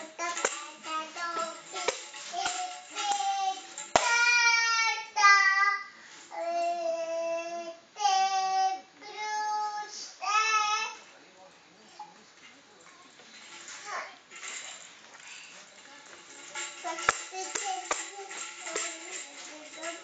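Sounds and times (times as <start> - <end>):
tambourine hits and jingles: 0.0 - 4.5, 16.2 - 20.0
child singing: 0.0 - 11.0, 16.8 - 20.0.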